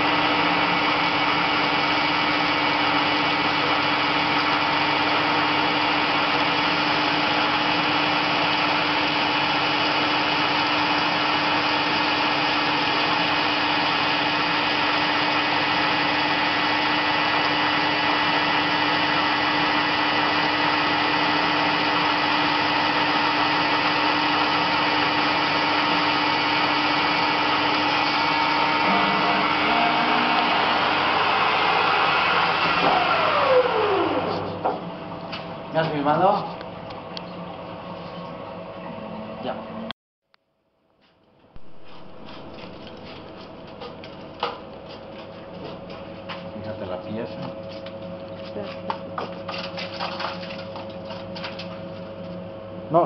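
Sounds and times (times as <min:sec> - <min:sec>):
lathe cutting metal: 0:00.0 - 0:34.6
constant machine hum: 0:00.0 - 0:39.9, 0:41.6 - 0:53.0.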